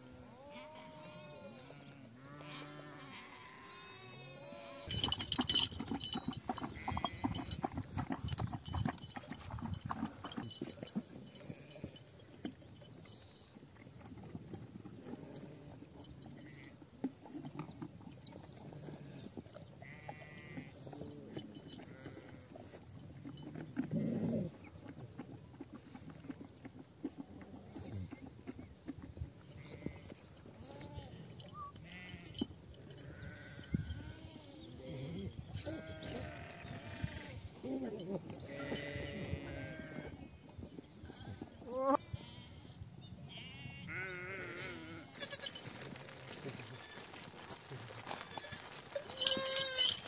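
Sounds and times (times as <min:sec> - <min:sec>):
sheep and goats bleating: 0:00.0 - 0:07.7, 0:08.7 - 0:12.2, 0:15.0 - 0:16.8, 0:18.4 - 0:22.8, 0:29.4 - 0:40.4, 0:41.1 - 0:50.0
bells clanking: 0:04.8 - 0:13.5, 0:31.3 - 0:33.7, 0:48.4 - 0:50.0
flock jostling: 0:04.9 - 0:11.4, 0:47.9 - 0:50.0.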